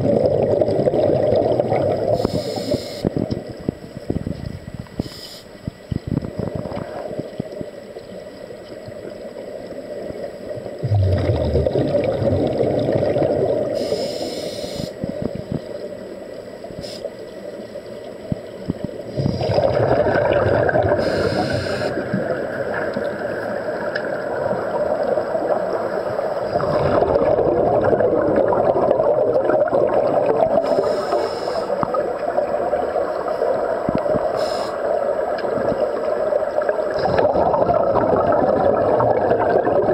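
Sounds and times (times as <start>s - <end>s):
rushing air from diving helmets: 0.0s - 3.3s, 10.8s - 15.5s, 19.1s - 23.8s, 24.4s - 35.3s, 36.3s - 39.9s
muffled underwater bubbling: 0.0s - 7.8s, 9.8s - 15.8s, 18.2s - 39.9s.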